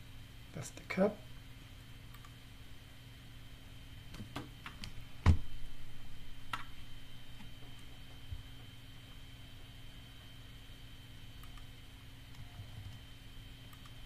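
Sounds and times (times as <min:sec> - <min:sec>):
faint steady hum: 0:00.0 - 0:14.0
computer mouse clicks: 0:02.1 - 0:02.4, 0:11.4 - 0:11.7, 0:13.7 - 0:14.0.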